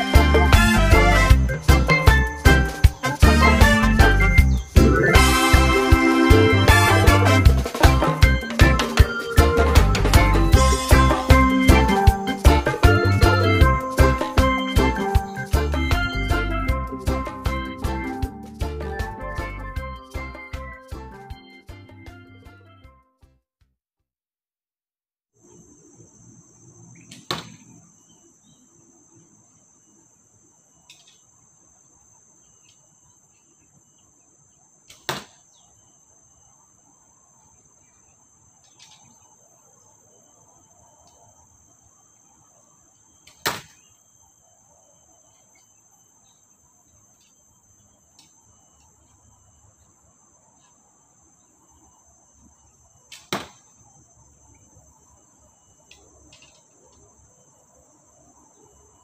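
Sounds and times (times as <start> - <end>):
high insect buzz: 0.0 - 18.7
arrows striking foam target: 27.1 - 27.6, 34.9 - 35.4, 43.3 - 43.8, 53.1 - 53.7.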